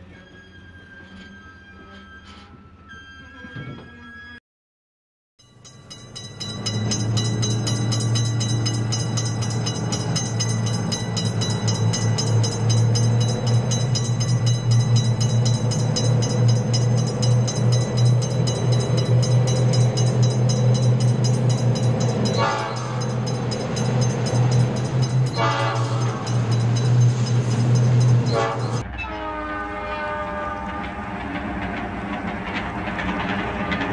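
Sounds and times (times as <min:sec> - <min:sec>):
horn-like blast: 0:22.4 - 0:23.0, 0:25.4 - 0:26.0, 0:28.3 - 0:30.9.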